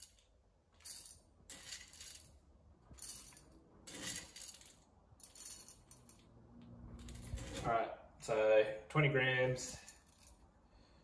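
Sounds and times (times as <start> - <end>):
coffee beans rattling: 0.0 - 6.2, 7.0 - 7.7.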